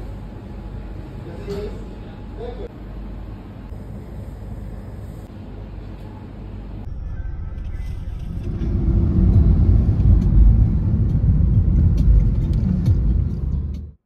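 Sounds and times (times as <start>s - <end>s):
car engine and road noise: 5.2s - 14.0s.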